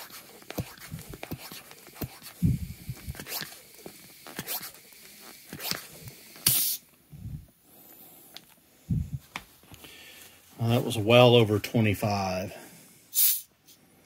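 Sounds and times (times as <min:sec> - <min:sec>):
short sharp hiss: 0:00.0 - 0:06.9, 0:13.1 - 0:13.8.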